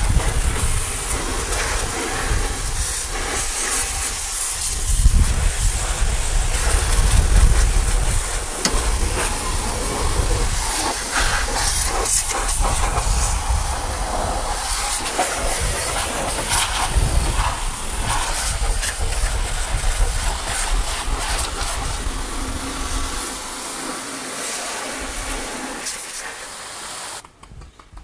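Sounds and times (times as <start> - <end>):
pressure washer spray hissing: 0.0 - 27.2
pump motor rumbling: 5.0 - 27.2.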